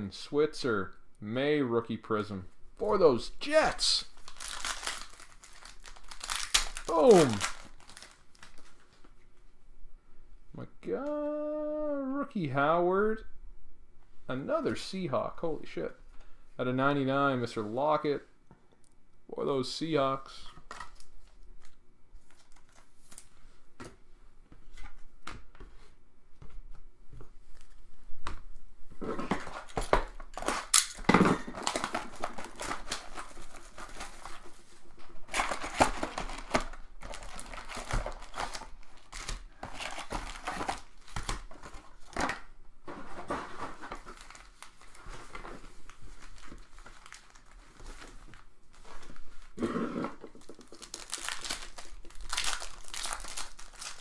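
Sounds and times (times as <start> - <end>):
wrappers tearing and crinkling: 3.5 - 8.8, 29.4 - 34.6, 35.2 - 42.2, 43.8 - 48.5, 50.4 - 54.0
cards clicking and rustling: 4.2 - 8.8.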